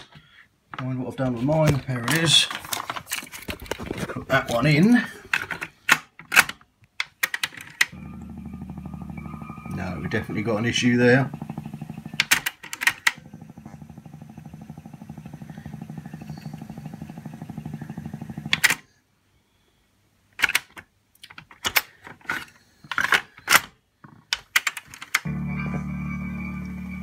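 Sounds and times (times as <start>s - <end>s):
tape deck clicks and clunks: 12.0s - 13.2s, 24.3s - 25.8s
music from a cassette: 25.2s - 27.0s.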